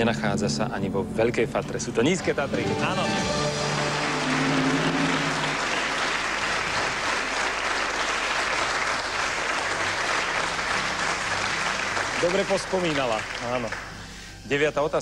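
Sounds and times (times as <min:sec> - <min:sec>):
audience applauding: 0:02.2 - 0:14.2.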